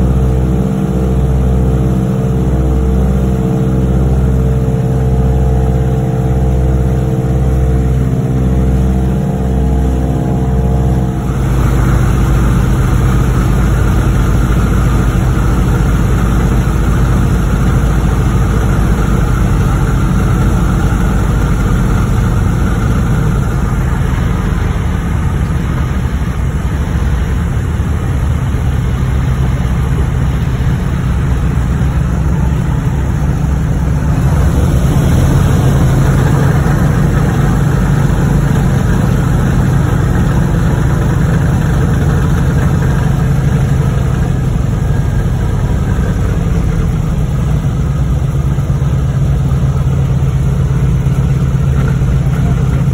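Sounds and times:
propeller plane engine droning: 0.0s - 52.9s.

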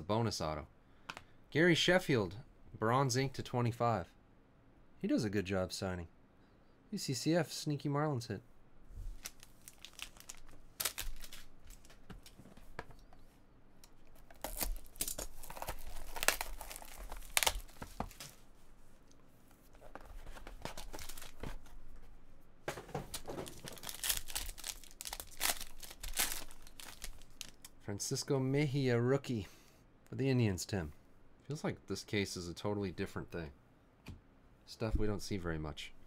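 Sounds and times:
plastic shrink wrap crinkling: 9.1s - 12.8s, 13.8s - 18.4s, 19.8s - 21.5s, 23.1s - 27.7s.

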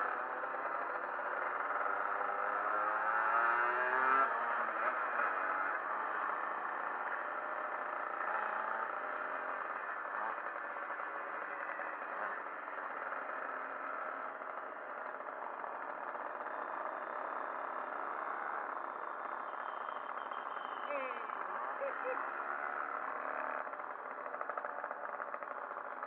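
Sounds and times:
road noise: 0.0s - 26.0s
moped engine running: 0.1s - 26.0s.

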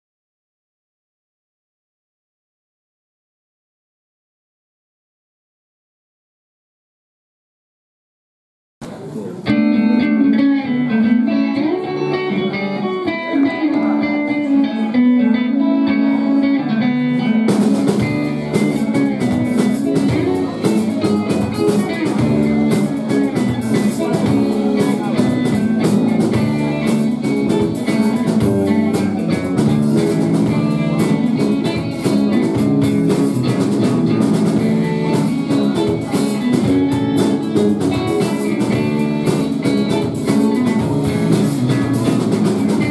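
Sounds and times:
electric guitar notes: 8.8s - 42.9s
live rock band playing: 8.8s - 42.9s
drum kit with cymbals: 17.4s - 42.9s.

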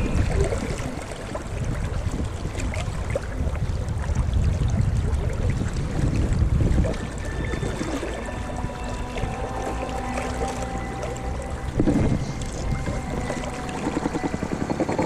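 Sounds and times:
river water rushing: 6.7s - 15.0s.

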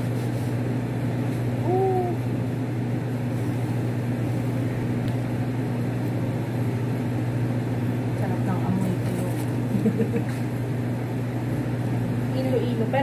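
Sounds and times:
low mechanical hum: 0.0s - 13.0s
short hummed voice: 1.5s - 2.4s.

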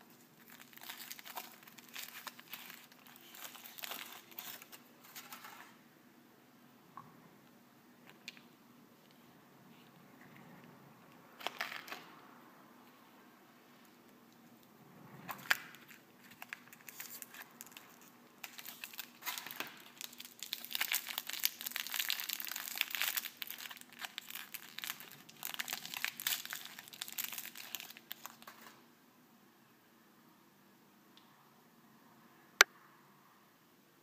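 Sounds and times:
plastic wrapper crinkling: 0.0s - 5.8s, 11.4s - 12.1s, 15.3s - 28.8s.

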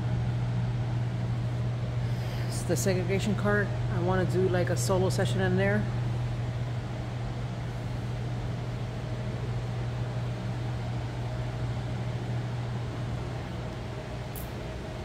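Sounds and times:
air-conditioning unit humming: 0.0s - 15.0s.

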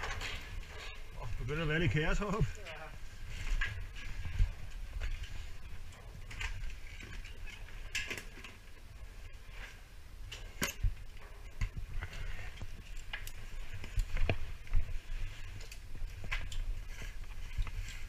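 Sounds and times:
rustling of gear: 10.8s - 18.0s.

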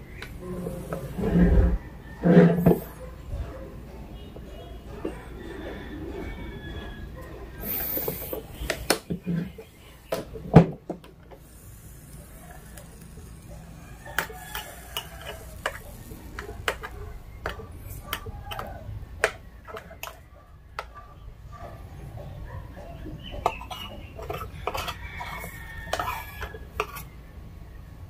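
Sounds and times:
metal spoon scraping waffle maker: 0.4s - 2.9s, 11.4s - 20.2s, 23.4s - 27.2s.

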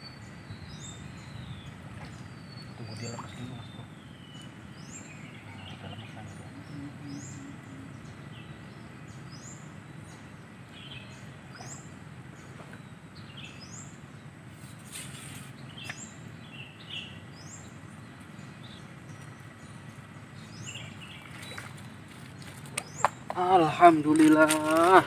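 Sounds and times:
outdoor background noise: 0.0s - 25.0s
small birds calling: 0.0s - 25.0s
brief hiss of noise: 14.6s - 15.6s.

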